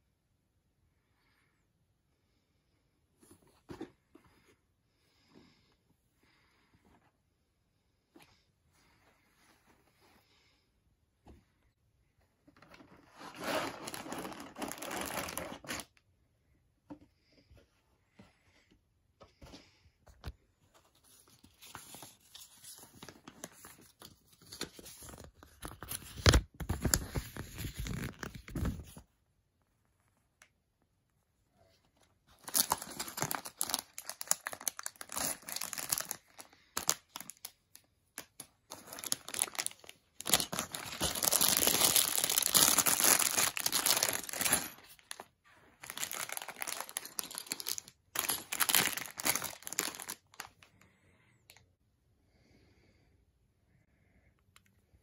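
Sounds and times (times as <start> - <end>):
plastic bags crinkling: 13.2 - 15.9, 32.3 - 50.7.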